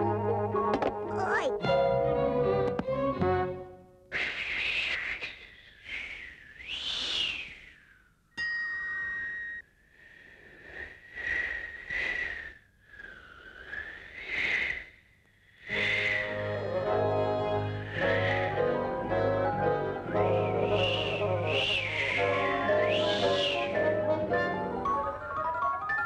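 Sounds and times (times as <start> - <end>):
steady high whistle: 5.8 - 8.2, 15.7 - 16.4, 17.7 - 19.3, 20.1 - 24.2
cartoon whistling wind gusts: 20.0 - 24.1.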